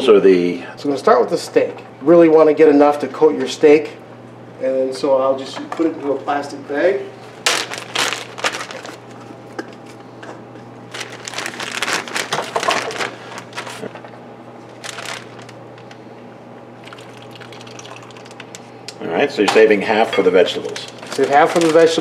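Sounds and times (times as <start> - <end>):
plastic bag crinkling: 7.4 - 9.0, 10.9 - 14.1, 14.7 - 16.0, 16.8 - 18.7, 20.5 - 22.0
marinade pouring: 16.8 - 18.7.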